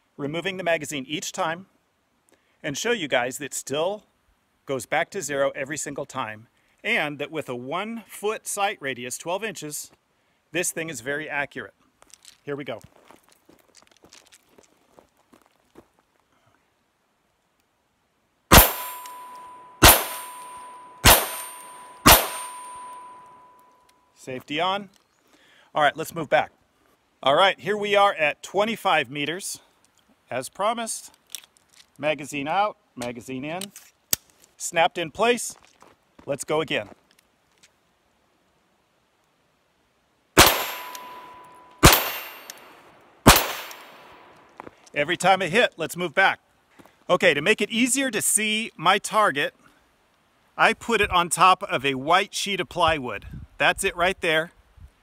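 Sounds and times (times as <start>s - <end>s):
pistol shots: 18.5s - 23.2s, 40.4s - 42.6s, 43.3s - 44.2s
steel target ringing ping: 18.5s - 24.0s, 40.4s - 42.7s.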